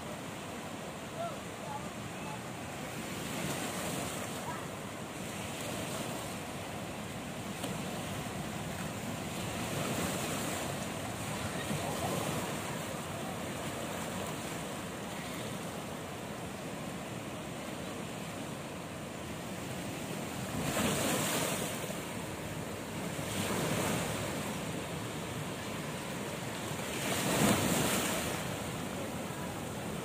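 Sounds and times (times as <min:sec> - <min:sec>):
surf washing over rocks: 0:00.0 - 0:30.0
waves breaking on rocks: 0:25.5 - 0:29.2.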